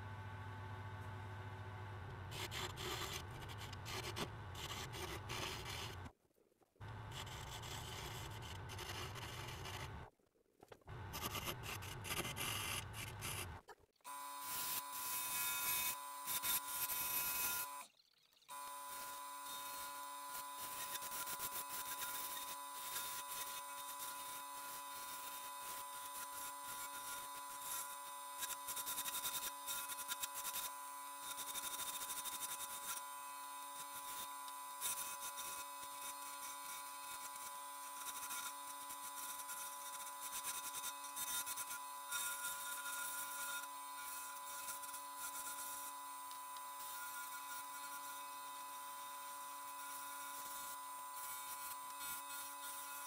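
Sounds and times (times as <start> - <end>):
turning tool cutting wood: 10.9 - 53.0.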